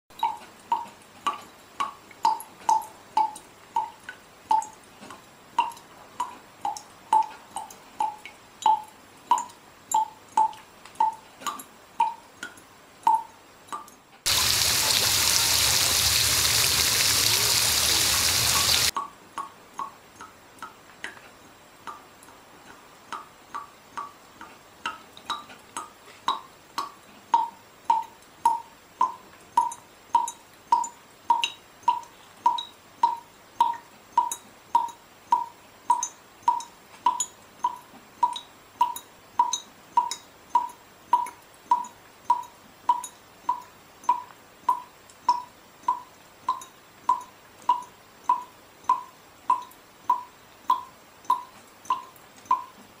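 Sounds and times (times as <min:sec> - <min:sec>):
clock-like ticking: 0:00.1 - 0:04.8, 0:05.6 - 0:20.8, 0:24.8 - 0:52.8
rushing water: 0:14.3 - 0:19.0.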